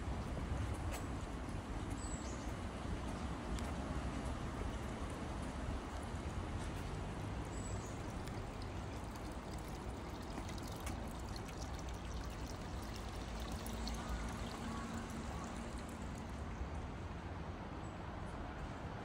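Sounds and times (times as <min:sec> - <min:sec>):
water pouring and splashing: 0:06.6 - 0:16.9.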